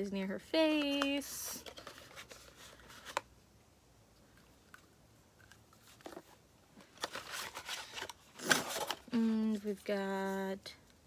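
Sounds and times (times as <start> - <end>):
rustling and scraping: 0.8 - 3.3, 4.2 - 10.4.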